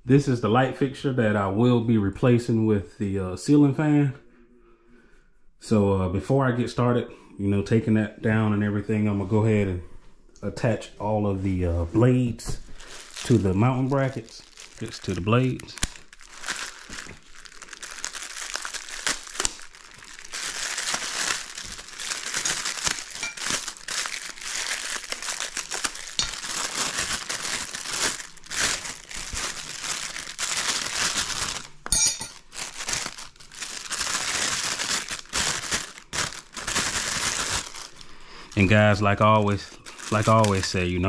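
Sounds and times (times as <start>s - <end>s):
plastic packaging crinkling: 11.1s - 41.0s.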